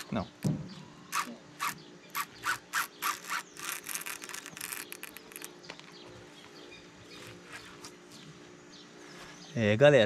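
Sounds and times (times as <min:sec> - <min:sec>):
fishing reel whirring: 0:01.1 - 0:05.5.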